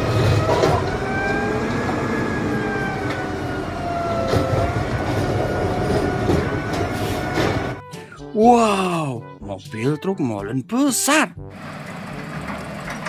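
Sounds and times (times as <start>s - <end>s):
heavy vehicle rumbling: 0.0s - 8.2s, 11.4s - 13.0s.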